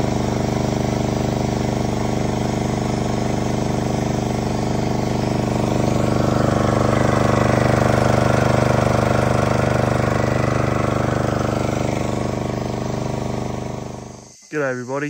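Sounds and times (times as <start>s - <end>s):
small water pump engine running: 0.0s - 14.4s
hose spraying water: 3.4s - 13.7s.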